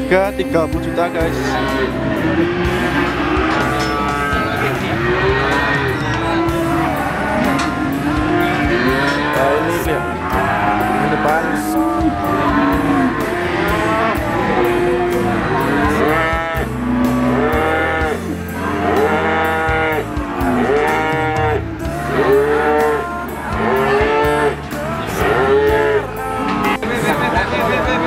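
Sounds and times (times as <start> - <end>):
music with steady beat: 0.0 - 28.0
cattle mooing: 1.2 - 28.0.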